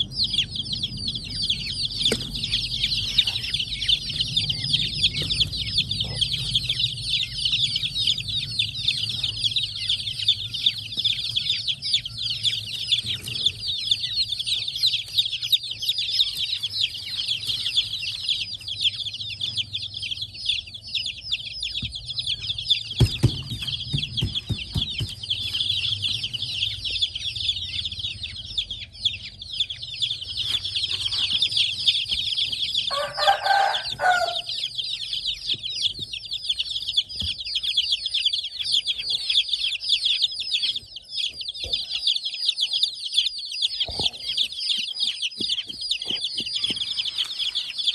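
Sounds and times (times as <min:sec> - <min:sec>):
baby chicks peeping: 0:00.0 - 0:47.9
knocks: 0:22.9 - 0:25.4.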